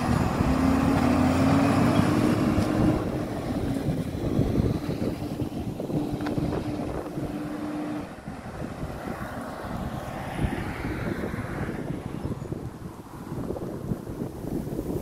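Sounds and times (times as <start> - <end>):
truck engine humming: 0.0 - 10.5
car passing: 0.0 - 15.0
wind buffeting microphone: 0.0 - 15.0.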